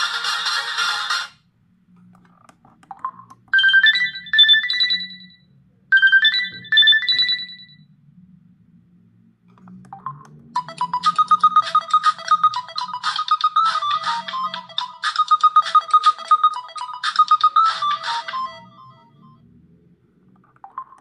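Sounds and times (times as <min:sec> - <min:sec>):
phone ringtone with bright notes: 0:00.0 - 0:01.3, 0:03.6 - 0:07.8, 0:10.6 - 0:19.4
fast busy ringtone: 0:03.6 - 0:07.8, 0:10.6 - 0:19.4.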